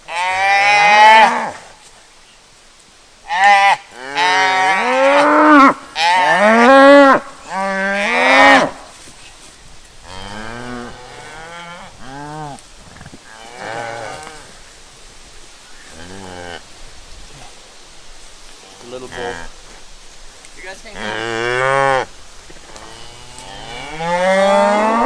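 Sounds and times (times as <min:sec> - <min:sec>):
cattle mooing: 0:22.8 - 0:25.0.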